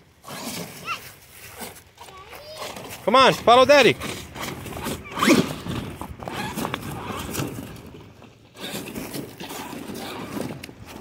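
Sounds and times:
tyres grinding over stones: 0:00.2 - 0:11.0
rc truck motor whirring: 0:04.0 - 0:07.8, 0:08.5 - 0:11.0.

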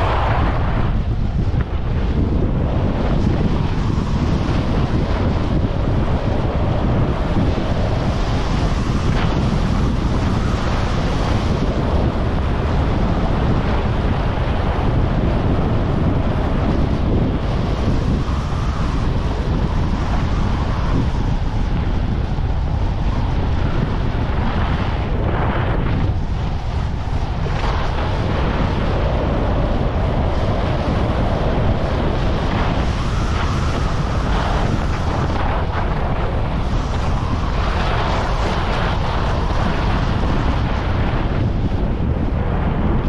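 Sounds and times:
wind buffeting microphone: 0:00.0 - 0:43.0
skis sliding over snow: 0:31.9 - 0:41.4.

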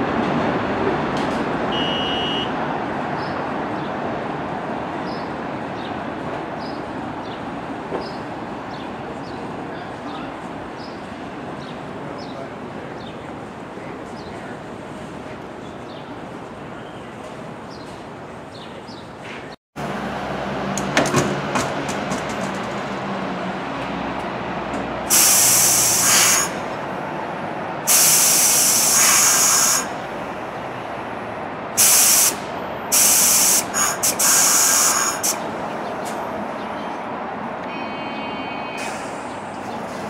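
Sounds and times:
air brakes hissing: 0:25.1 - 0:26.7, 0:27.9 - 0:30.0, 0:31.8 - 0:36.2, 0:37.9 - 0:39.5.

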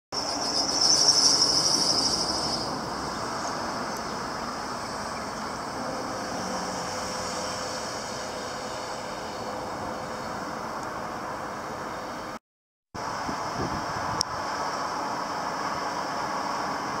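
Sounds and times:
city traffic noise: 0:00.1 - 0:12.4, 0:13.0 - 0:17.0
high-pitched squeal: 0:00.2 - 0:10.7.

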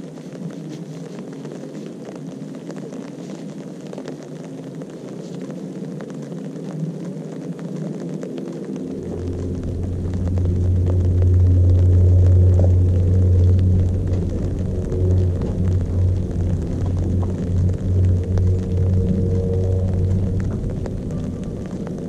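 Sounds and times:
low steady rumble: 0:08.8 - 0:22.0
deep bass hum: 0:09.0 - 0:22.0.

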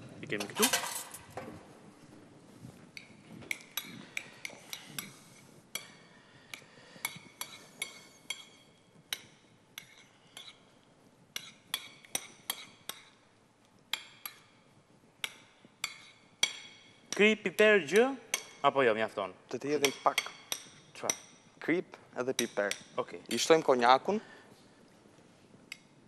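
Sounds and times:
spoon clinking against dish: 0:05.8 - 0:10.6, 0:11.3 - 0:13.2.

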